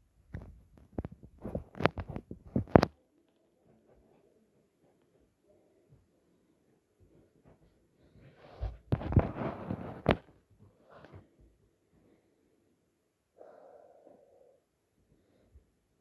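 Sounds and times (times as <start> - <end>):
soft breathing: 3.6 - 9.8, 10.6 - 16.0
rustling: 7.1 - 11.6.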